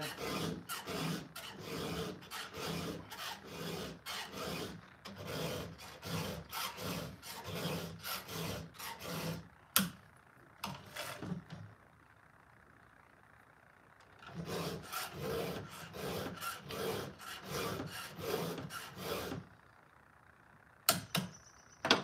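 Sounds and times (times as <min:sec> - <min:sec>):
file rasping on saw chain: 0:00.0 - 0:09.5, 0:14.3 - 0:19.4.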